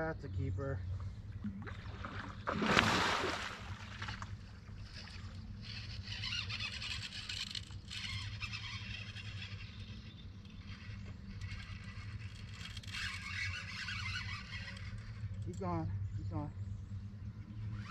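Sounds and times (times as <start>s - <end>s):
fishing reel ticking whirr: 4.2s - 17.9s.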